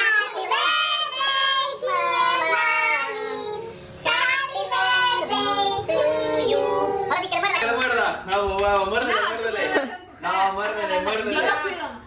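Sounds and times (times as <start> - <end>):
family singing birthday song: 0.0 - 7.9.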